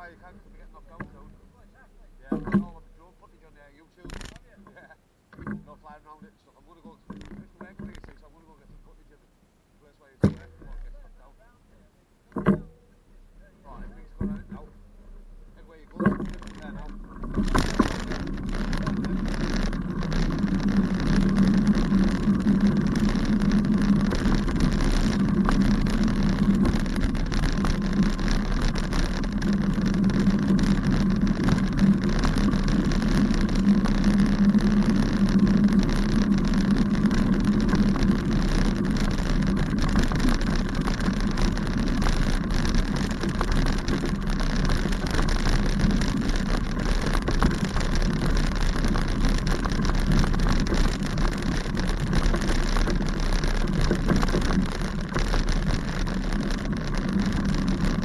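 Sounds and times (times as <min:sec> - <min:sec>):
bicycle rattling on dirt path: 0:00.0 - 0:01.4, 0:02.2 - 0:08.6, 0:13.6 - 0:14.7, 0:15.5 - 0:58.0
small knocks from bumps: 0:06.9 - 0:08.3, 0:10.2 - 0:11.0, 0:15.8 - 0:58.0
wind on microphone: 0:16.0 - 0:58.0.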